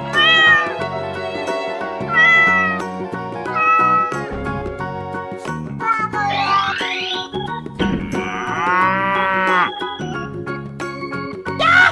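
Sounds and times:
background music with beat: 0.0s - 5.8s
cat meowing: 0.1s - 0.8s, 2.1s - 2.9s, 3.5s - 4.3s.

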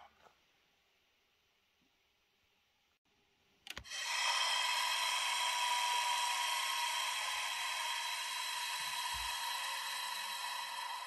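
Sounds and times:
hiss of compressed air: 3.9s - 11.0s.

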